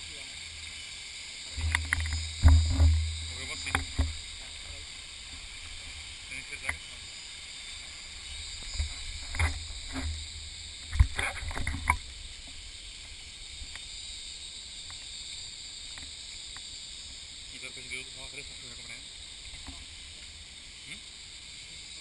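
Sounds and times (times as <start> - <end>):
stream running over stones: 0.0 - 22.0
sharp knocks and thumps: 1.5 - 4.5, 8.7 - 12.6.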